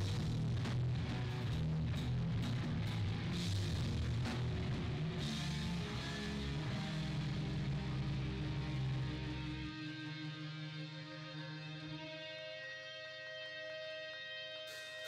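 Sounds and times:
punk band playing live: 0:00.0 - 0:10.9.

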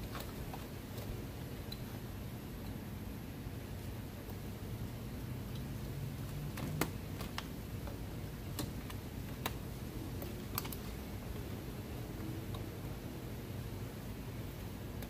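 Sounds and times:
plastic clips clicking: 0:10.2 - 0:10.9.

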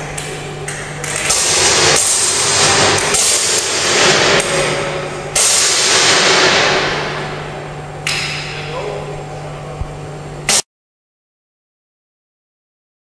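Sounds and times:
low electrical hum: 0:00.0 - 0:10.6
electrical arcing crackling: 0:01.2 - 0:07.4.

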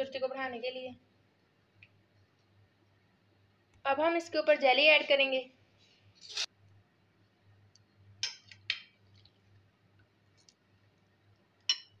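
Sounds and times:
metal spoon clicking on glass bowl: 0:11.7 - 0:12.0.

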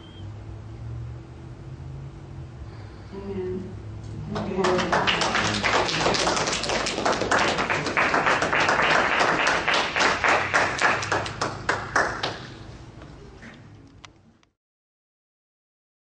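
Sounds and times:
crowd applauding: 0:04.4 - 0:12.6.

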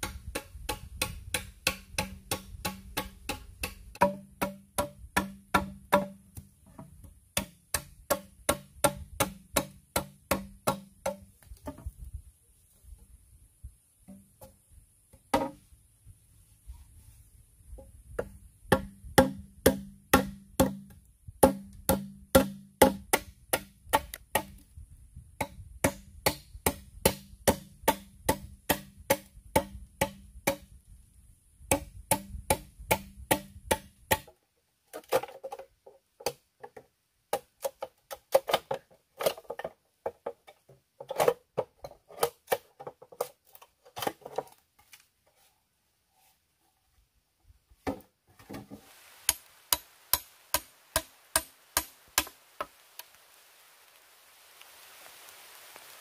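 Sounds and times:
blade chopping bamboo: 0:00.0 - 0:06.5, 0:07.4 - 0:11.3, 0:18.7 - 0:24.6, 0:49.3 - 0:52.7
ringing knocks on bamboo pole: 0:01.7 - 0:06.2
steady high hiss: 0:48.6 - 0:56.0.

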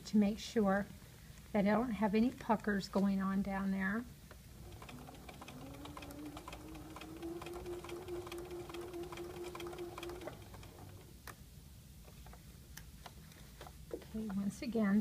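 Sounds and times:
sewing machine motor hum: 0:04.5 - 0:11.1.

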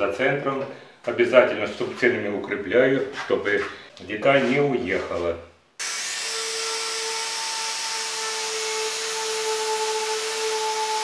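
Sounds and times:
router cutting wood: 0:05.8 - 0:11.0.

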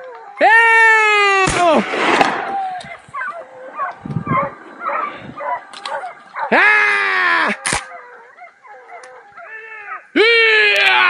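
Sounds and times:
distant dog yelps: 0:02.5 - 0:10.2
dog baying: 0:02.9 - 0:06.7, 0:07.5 - 0:10.1.

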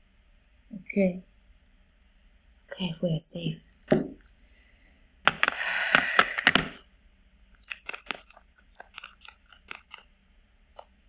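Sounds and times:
small clicks of mascara brush: 0:07.6 - 0:10.0
scratchy rustling with crackles: 0:07.6 - 0:10.1.

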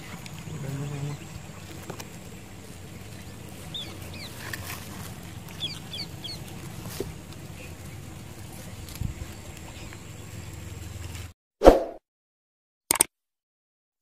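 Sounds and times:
small bird chirping: 0:00.0 - 0:08.0
low outdoor background noise: 0:00.0 - 0:11.3.

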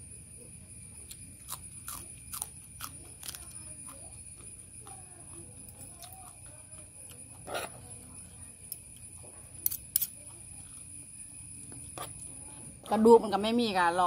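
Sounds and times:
person chewing: 0:01.0 - 0:03.5.

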